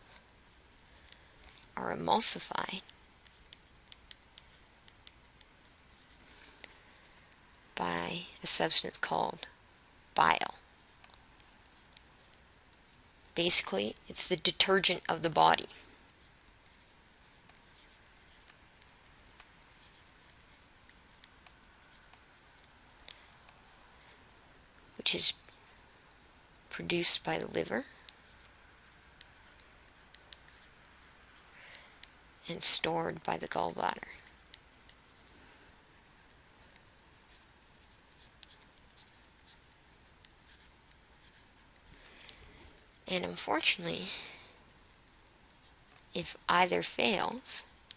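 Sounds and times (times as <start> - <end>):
stylus tapping and scratching on tablet: 0.0 - 9.5, 10.2 - 47.9
stylus tapping and scratching: 2.4 - 7.4, 27.4 - 32.1, 35.9 - 42.4.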